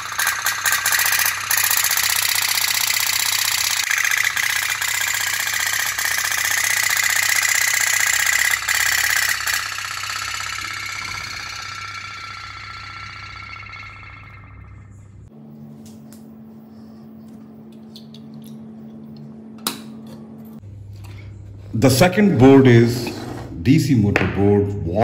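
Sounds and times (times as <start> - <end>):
toy steam boat tapping: 0.0 - 12.7.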